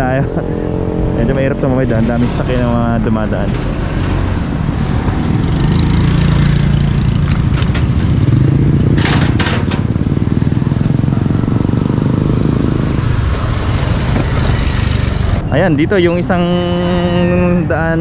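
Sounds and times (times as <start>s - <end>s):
vehicle engine humming: 0.0s - 18.0s.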